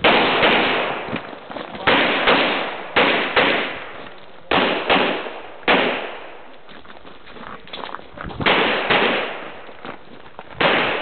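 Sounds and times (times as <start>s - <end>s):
pistol shots with echo: 0.0s - 1.2s, 1.8s - 6.5s, 8.4s - 9.6s, 10.6s - 11.0s.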